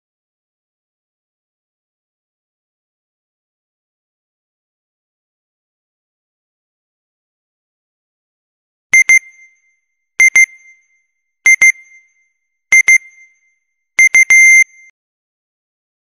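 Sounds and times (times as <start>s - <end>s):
timer alarm double beeps: 9.0s - 9.6s, 10.2s - 10.9s, 11.5s - 13.4s, 14.0s - 14.9s.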